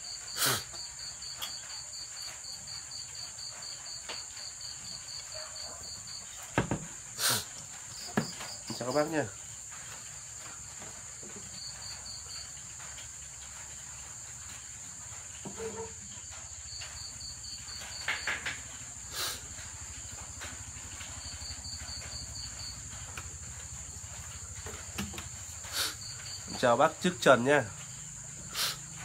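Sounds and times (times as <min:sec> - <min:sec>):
cricket chirping: 0:00.0 - 0:29.0
high-pitched insect trill: 0:00.0 - 0:29.0.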